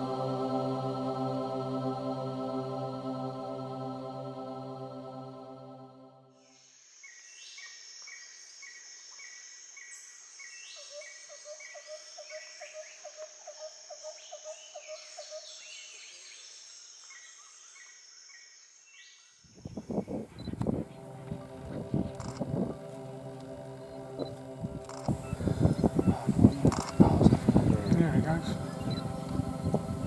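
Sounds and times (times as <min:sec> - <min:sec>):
high insect hiss: 0:06.4 - 0:30.0
low rapidly pulsing call: 0:20.1 - 0:30.0.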